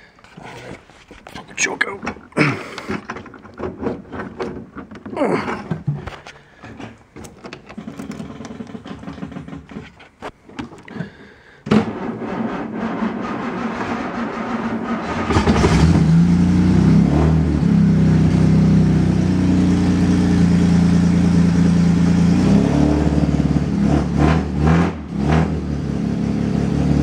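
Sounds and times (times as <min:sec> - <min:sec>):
engine starter cranking: 0:01.6 - 0:16.6
engine running: 0:11.7 - 0:27.0.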